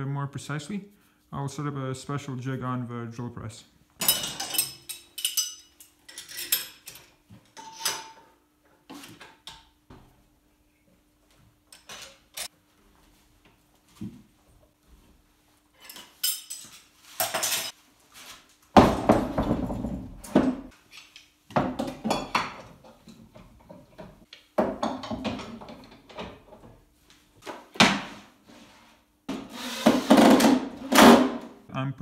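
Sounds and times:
metal and wood clanking and rattling: 0:04.0 - 0:08.3, 0:18.8 - 0:20.8, 0:21.5 - 0:26.8.

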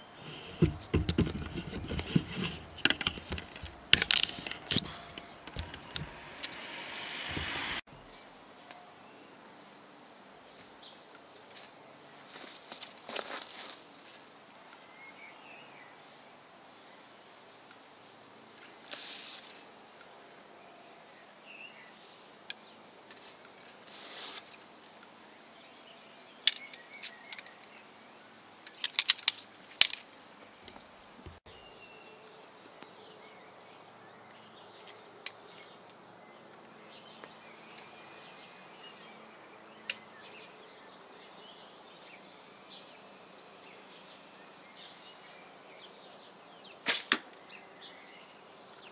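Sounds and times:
wooden arrow shafts clicking: 0:00.2 - 0:07.6, 0:26.5 - 0:27.9
arrows rasping out of target: 0:00.2 - 0:07.9, 0:46.9 - 0:47.2.

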